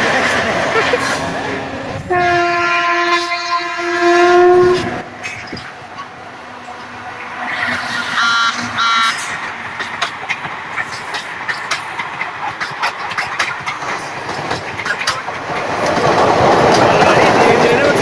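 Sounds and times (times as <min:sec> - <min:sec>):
rush of passing train: 0:00.0 - 0:18.0
train wheels clacking on rail joints: 0:00.0 - 0:18.0
train horn blasts: 0:02.1 - 0:05.1, 0:07.6 - 0:09.2.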